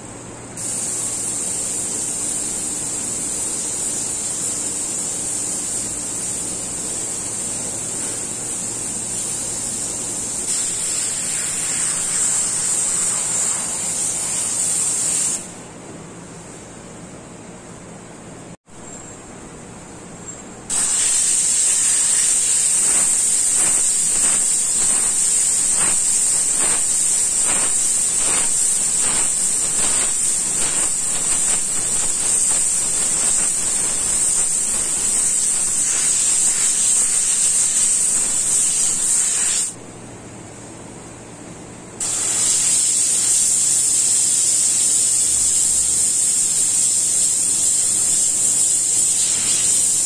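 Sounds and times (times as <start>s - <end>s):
airbrush hissing: 0.6s - 15.5s, 20.7s - 39.8s, 42.0s - 50.0s.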